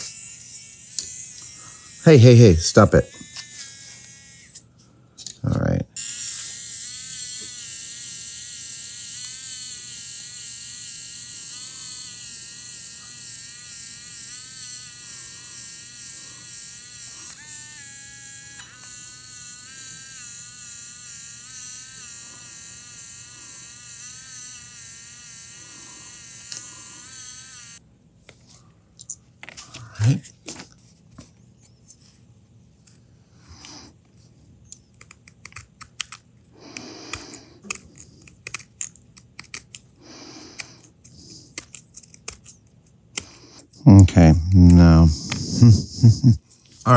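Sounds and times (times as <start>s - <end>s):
high-pitched electric motor whine: 0.0s - 4.7s, 6.0s - 27.8s.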